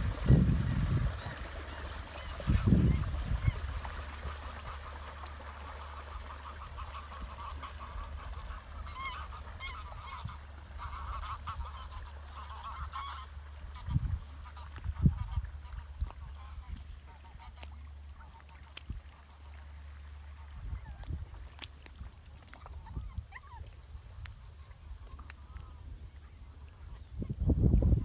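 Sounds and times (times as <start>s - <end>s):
wind rumble on microphone: 0.0s - 4.8s, 6.5s - 17.6s, 20.4s - 28.0s
geese honking: 1.2s - 18.8s.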